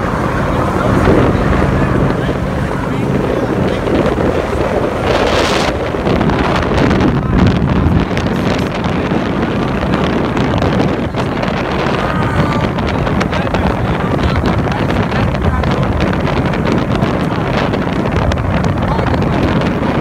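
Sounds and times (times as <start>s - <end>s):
boat engine drone: 0.0s - 20.0s
wind buffeting microphone: 0.0s - 20.0s.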